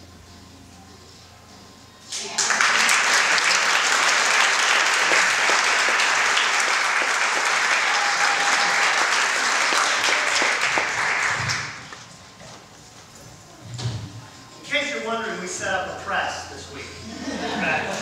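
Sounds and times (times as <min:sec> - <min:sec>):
audience clapping: 0:02.1 - 0:12.2.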